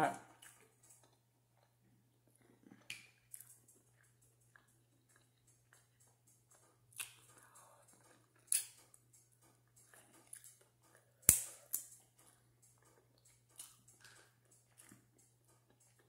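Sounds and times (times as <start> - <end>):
crab shells cracking: 6.5 - 9.2, 11.2 - 12.0.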